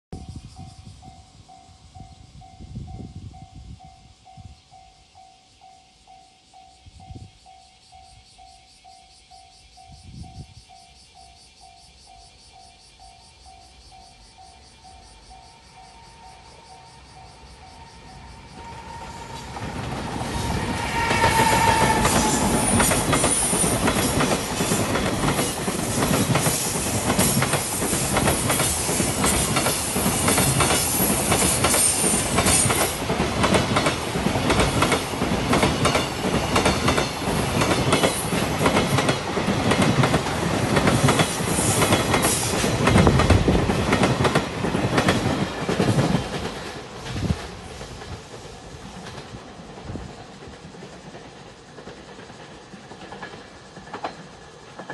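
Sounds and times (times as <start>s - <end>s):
train rumble: 14.1s - 54.9s.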